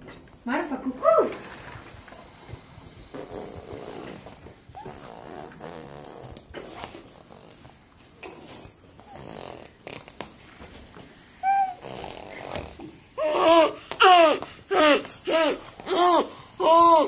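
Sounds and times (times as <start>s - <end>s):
baby grunting: 13.2s - 17.0s.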